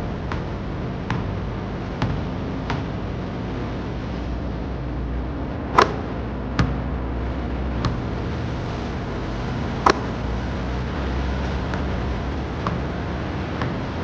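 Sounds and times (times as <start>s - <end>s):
basketball bouncing on court: 0.0s - 3.2s, 5.7s - 7.0s, 7.8s - 8.2s, 9.8s - 10.2s, 11.0s - 14.0s
low traffic rumble: 0.0s - 14.0s.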